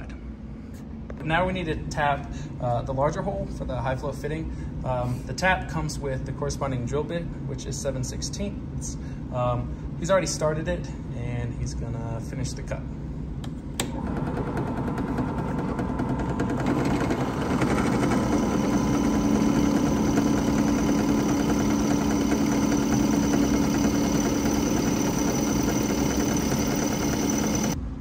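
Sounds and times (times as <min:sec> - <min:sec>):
drill press cutting metal: 0:14.0 - 0:27.8.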